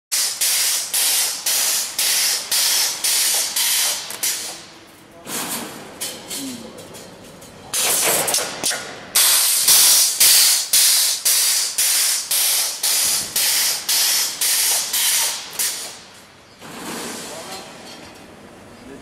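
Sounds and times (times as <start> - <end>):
pneumatic welding heads hissing: 0.1 - 4.6, 9.2 - 16.0.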